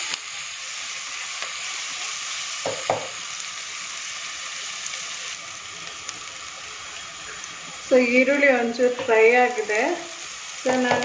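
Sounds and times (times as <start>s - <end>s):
food sizzling in hot oil: 0.0s - 11.0s
wooden spatula knocking on pot: 2.7s - 3.2s.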